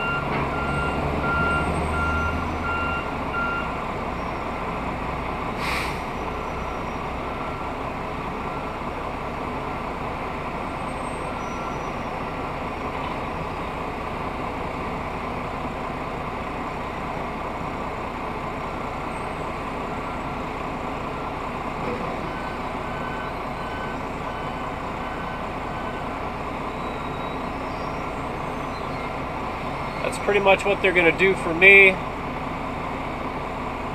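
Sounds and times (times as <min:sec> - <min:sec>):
reversing alarm beeping: 0:00.0 - 0:04.7, 0:21.9 - 0:30.5
diesel engine idling: 0:00.0 - 0:33.9
short air hiss: 0:05.6 - 0:06.1.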